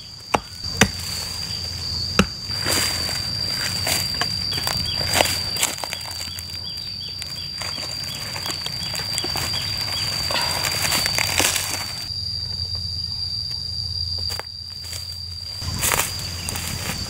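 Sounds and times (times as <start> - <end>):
high-pitched insect call: 0.0 - 17.0
clay soil crumbling: 0.7 - 12.1.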